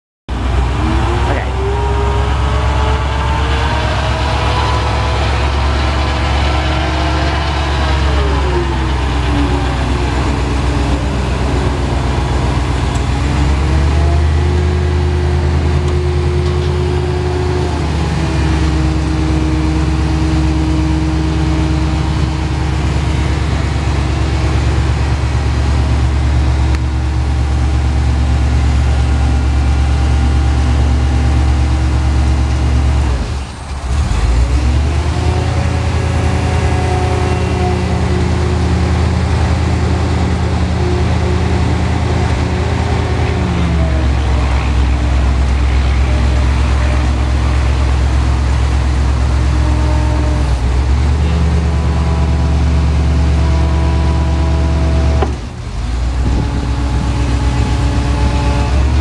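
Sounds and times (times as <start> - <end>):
forklift engine whining: 0.3 - 59.0.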